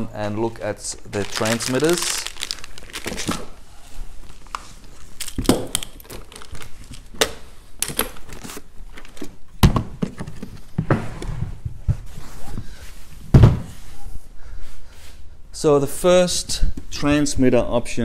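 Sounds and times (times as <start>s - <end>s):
cables rustling: 0.6s - 9.3s.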